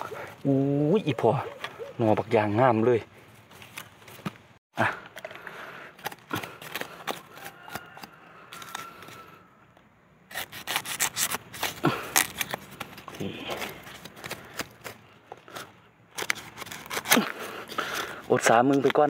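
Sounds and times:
crackling dry leaf litter: 10.3 - 15.6.

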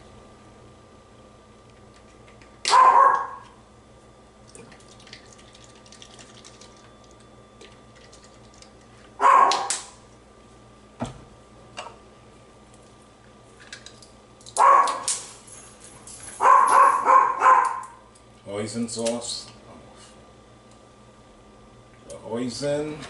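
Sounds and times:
dog barking: 2.7 - 3.5, 9.2 - 9.7, 14.6 - 15.1, 16.4 - 18.0.

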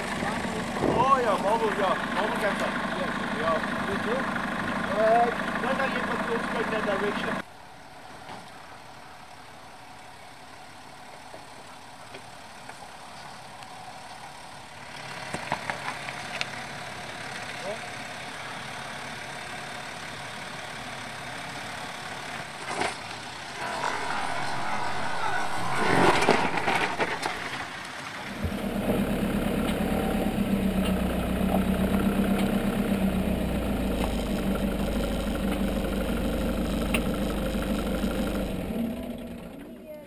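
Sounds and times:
car engine running steadily: 0.0 - 7.4, 28.3 - 40.0.

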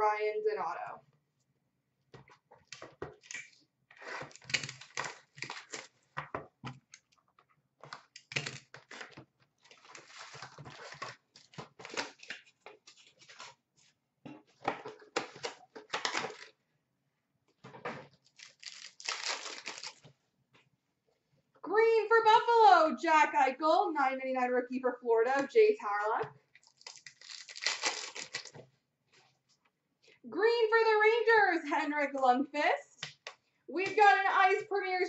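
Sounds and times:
card packs ripping and crinkling: 4.0 - 6.0, 8.2 - 13.6, 15.2 - 16.5, 18.2 - 20.0, 26.6 - 28.6.

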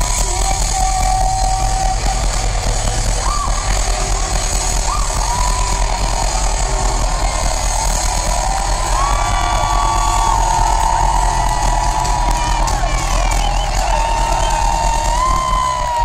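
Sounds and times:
loud distorted live band music: 0.0 - 16.0.

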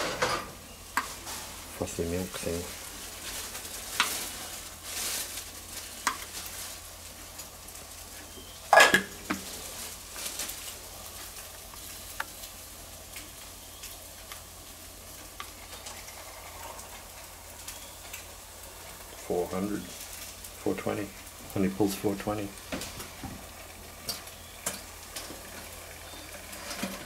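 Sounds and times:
milk frother sizzling hiss: 10.7 - 21.7.

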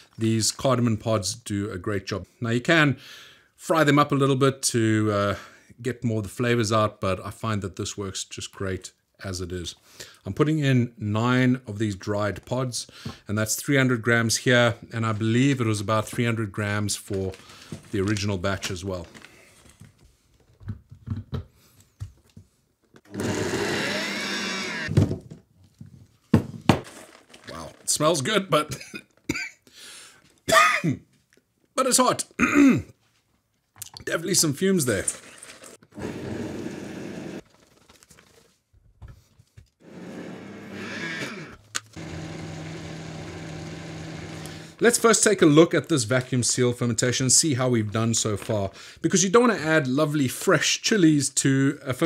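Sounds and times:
blender motor whining: 23.1 - 24.9, 35.9 - 37.4, 39.8 - 44.8.

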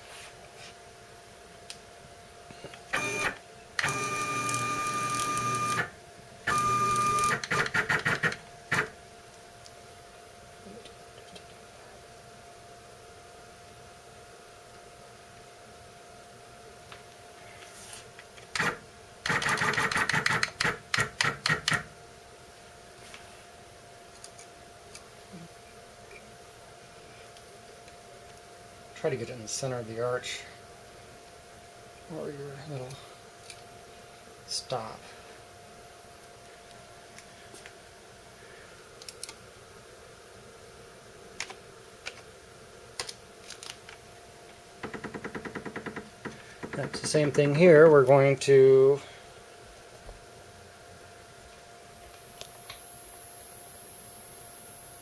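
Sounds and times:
faint steady hum: 0.0 - 55.0
stepper motor bursts: 2.9 - 5.9, 6.5 - 8.9.

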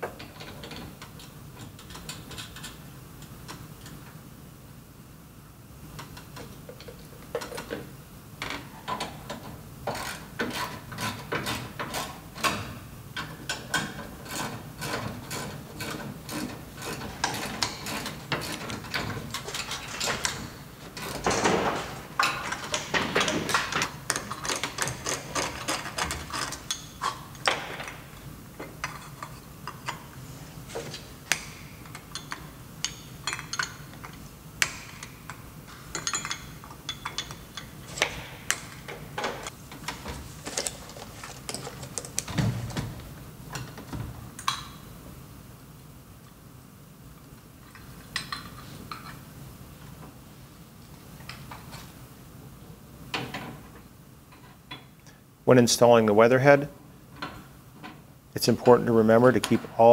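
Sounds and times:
metal hardware clicking and clinking: 31.3 - 39.5.

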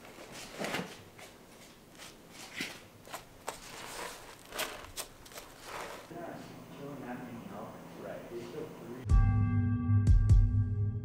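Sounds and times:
knife scraping and ripping hide: 2.6 - 6.1.

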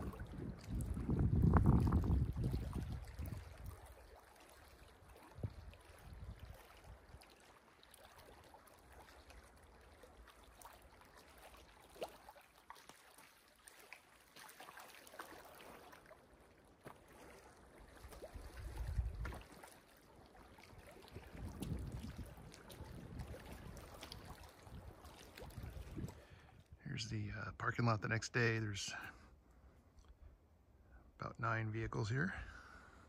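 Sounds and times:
wind buffeting microphone: 0.0 - 3.8, 5.4 - 6.6, 18.4 - 19.4, 21.1 - 26.4.

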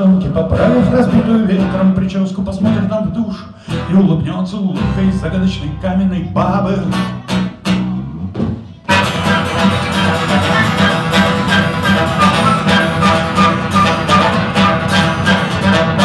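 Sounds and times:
acoustic guitar strumming: 0.0 - 16.0
flute and clarinet melody: 8.9 - 16.0.

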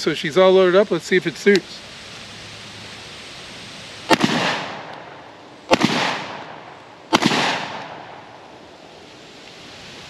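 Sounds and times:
shotgun shots echoing: 4.1 - 8.4.

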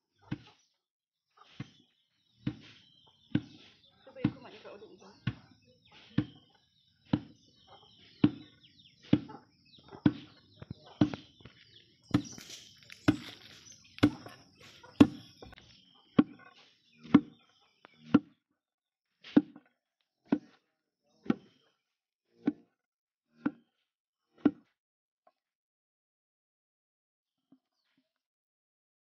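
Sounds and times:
wooden pestle pounding in mortar: 5.1 - 15.6.

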